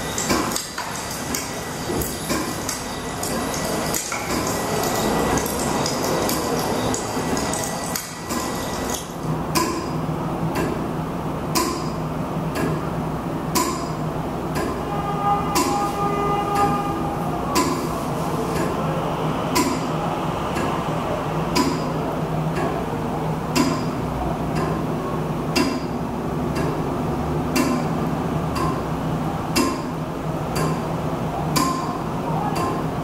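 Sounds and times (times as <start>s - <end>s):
mechanical ticking: 0.0s - 10.9s, 11.5s - 12.9s, 13.5s - 14.9s, 15.5s - 15.8s, 21.5s - 22.9s, 23.5s - 24.9s, 25.5s - 33.0s.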